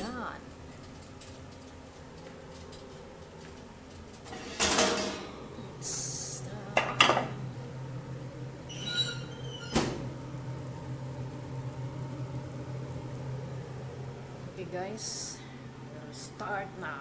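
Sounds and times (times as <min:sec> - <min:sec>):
steady low hum: 0:00.0 - 0:17.0
brief high squeak: 0:08.7 - 0:09.9.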